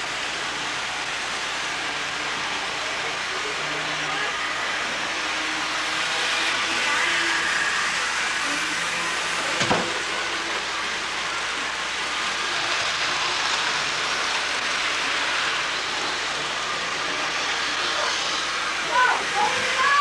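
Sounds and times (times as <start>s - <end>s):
model trains whirring on track: 0.0s - 20.0s.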